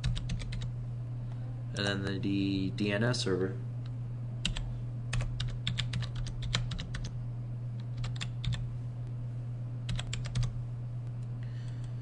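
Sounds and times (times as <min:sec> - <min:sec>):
keyboard typing: 0:00.0 - 0:00.7, 0:04.4 - 0:07.1, 0:07.9 - 0:08.6, 0:09.9 - 0:10.5
steady low hum: 0:00.0 - 0:12.0.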